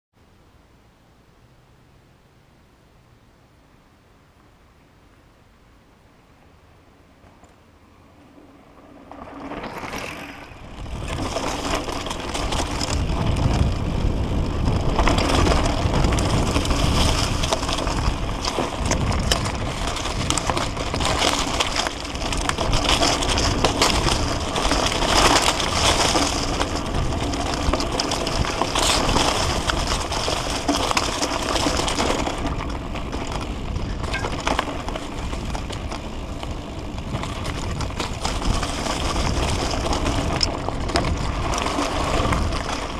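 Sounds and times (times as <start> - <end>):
bike rattling over bumps: 7.1 - 42.9
tyres crunching over dirt and stones: 9.1 - 42.9.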